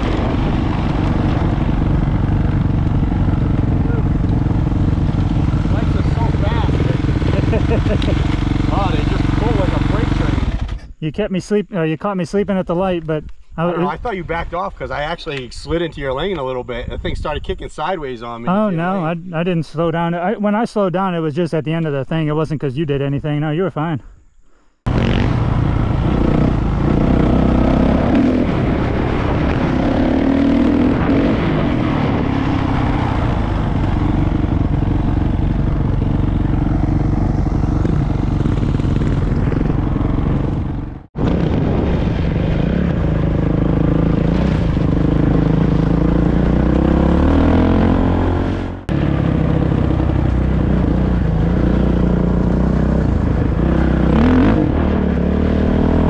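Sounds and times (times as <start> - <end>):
dirt bike engine revving: 0.0 - 10.9, 24.9 - 56.0.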